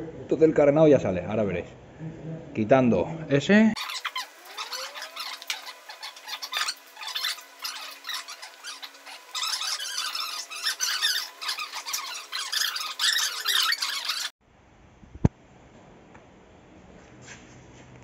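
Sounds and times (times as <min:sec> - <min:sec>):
plastic panels squeaking and scraping: 0:03.8 - 0:14.3.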